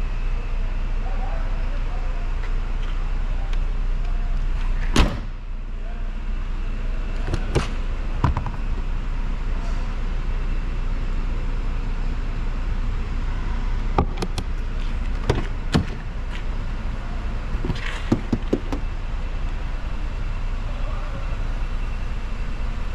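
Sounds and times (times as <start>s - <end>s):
steady low rumble: 0.0s - 22.9s
car flap and door clicks: 7.2s - 8.6s, 14.0s - 14.5s, 15.1s - 16.4s, 17.6s - 18.8s.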